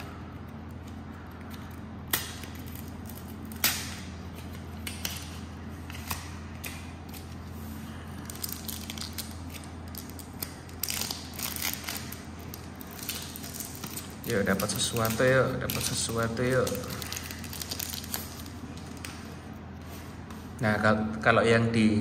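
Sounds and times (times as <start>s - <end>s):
foil wrapper crinkling: 7.2s - 19.3s.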